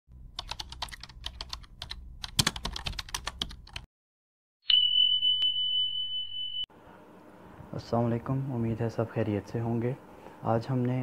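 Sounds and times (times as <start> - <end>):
keyboard typing clicks: 0.4 - 3.9
high-pitched beep: 4.7 - 6.7.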